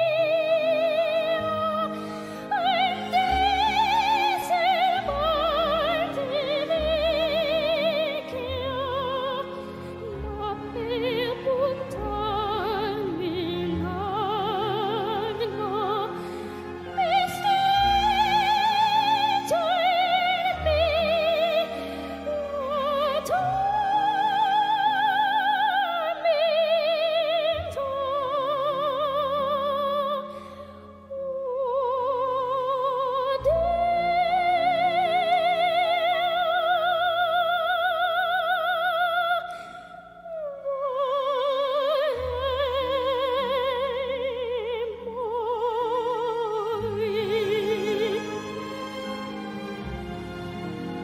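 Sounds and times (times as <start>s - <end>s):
opera singer with vibrato: 0.0s - 51.0s.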